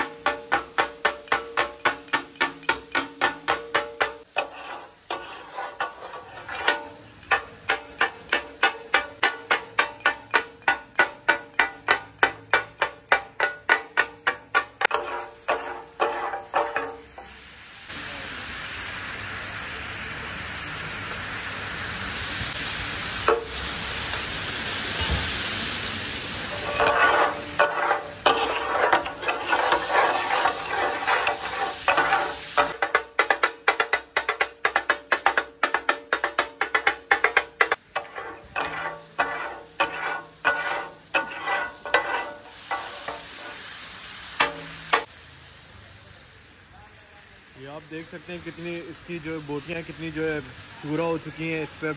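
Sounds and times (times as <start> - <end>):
metal spatulas clattering on griddle: 0.0 - 17.4, 26.5 - 43.6, 44.4 - 45.1
chicken sizzling on a griddle: 0.0 - 51.9.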